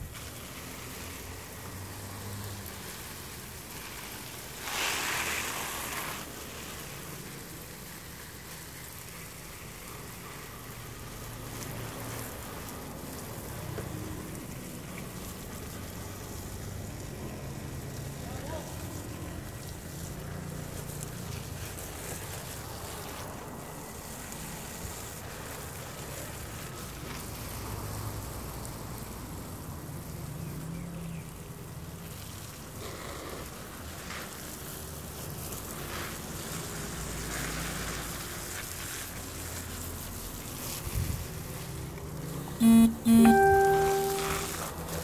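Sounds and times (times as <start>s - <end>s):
garden hose spraying water: 0.0s - 42.6s
short loud tone: 42.6s - 44.7s.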